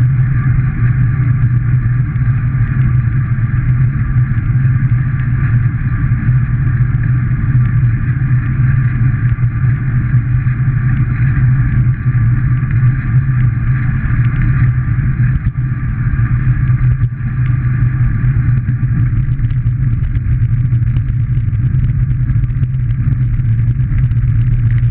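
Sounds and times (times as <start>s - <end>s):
bicycle tyre noise: 0.0s - 24.9s
wind rumble: 0.0s - 24.9s.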